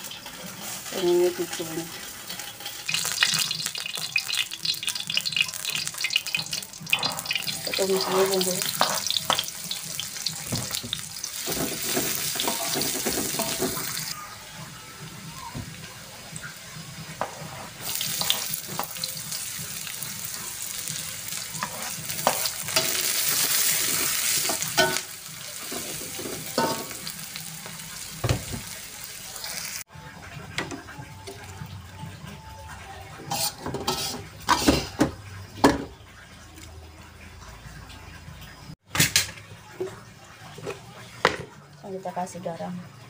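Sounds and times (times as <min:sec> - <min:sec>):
food sizzling in hot oil: 0:00.0 - 0:14.2, 0:15.3 - 0:29.9
spatula scraping a wok: 0:33.3 - 0:34.9.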